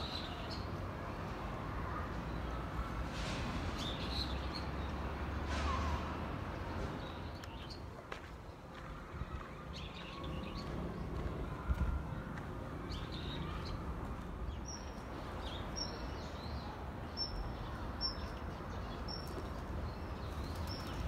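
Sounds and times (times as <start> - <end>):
small birds chirping: 12.2 - 21.0.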